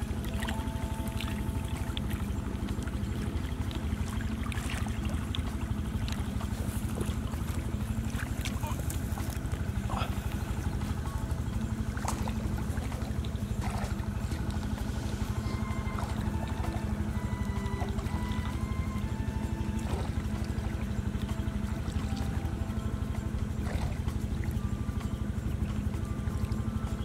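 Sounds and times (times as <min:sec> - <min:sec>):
water splashes and clicks: 0:00.0 - 0:10.9, 0:11.8 - 0:15.0, 0:23.4 - 0:26.6
low motor-like drone: 0:00.0 - 0:27.0.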